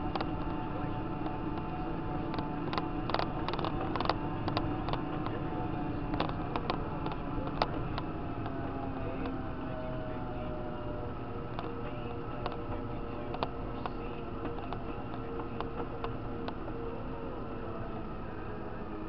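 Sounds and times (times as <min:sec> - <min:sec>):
tractor engine running: 0:00.0 - 0:19.0
sharp ticks and knocks: 0:02.3 - 0:05.4, 0:06.1 - 0:08.6, 0:13.3 - 0:16.6.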